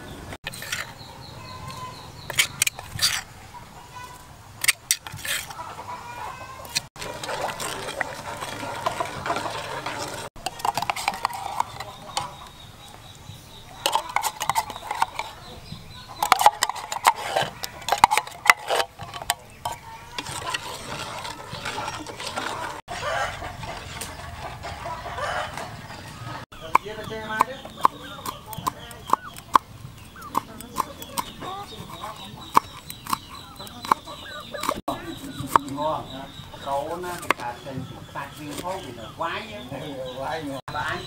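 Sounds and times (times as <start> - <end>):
chickens clucking: 0.0 - 41.0
spoon scraping metal pot: 0.4 - 1.0, 2.2 - 3.3, 4.6 - 5.6, 6.6 - 12.6, 13.8 - 15.5, 16.2 - 25.8, 30.2 - 37.5.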